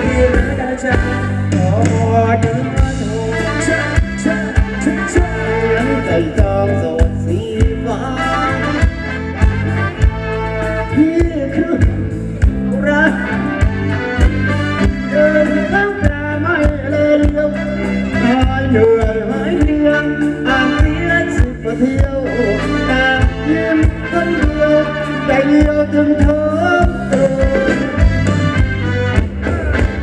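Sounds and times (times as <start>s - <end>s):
steady drum beat: 0.0s - 24.8s, 25.4s - 30.0s
bass line: 0.0s - 30.0s.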